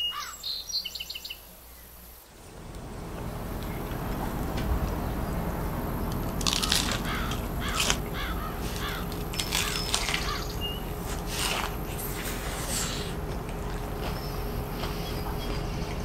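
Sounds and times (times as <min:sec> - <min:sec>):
bird calling: 0:00.0 - 0:16.0
thin bird chirp: 0:06.5 - 0:11.0.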